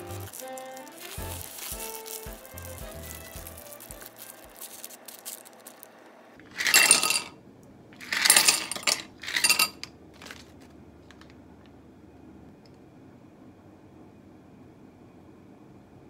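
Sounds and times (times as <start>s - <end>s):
ice cubes clinking in glass: 0.0s - 5.8s, 6.5s - 7.3s, 8.0s - 10.4s.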